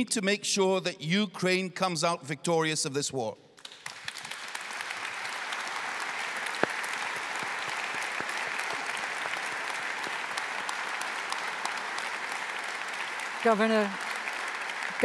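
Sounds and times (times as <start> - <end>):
audience applauding: 3.6 - 15.0.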